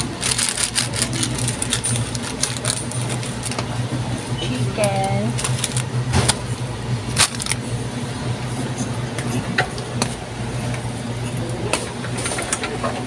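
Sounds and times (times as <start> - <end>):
shopping cart rumbling: 0.0 - 6.5, 7.1 - 7.7.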